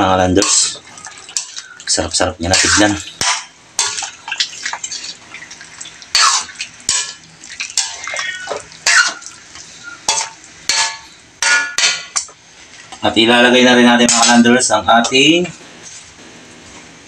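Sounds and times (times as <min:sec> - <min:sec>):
thick sauce sloshing: 0:03.8 - 0:10.0.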